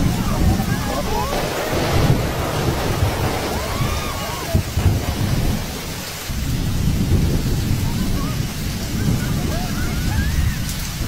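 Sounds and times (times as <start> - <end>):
storm wind buffeting microphone: 0.0 - 11.0.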